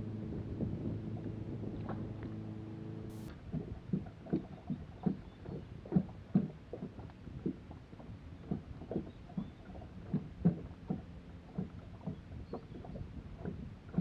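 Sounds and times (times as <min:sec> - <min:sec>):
electric boat motor humming: 0:00.0 - 0:03.3.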